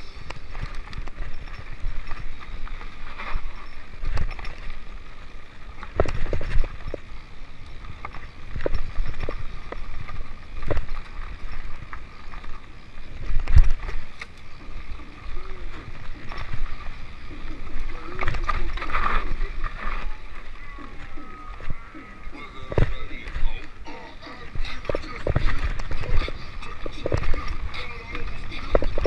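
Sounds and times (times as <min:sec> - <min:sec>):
mountain bike clattering: 0:00.0 - 0:29.0.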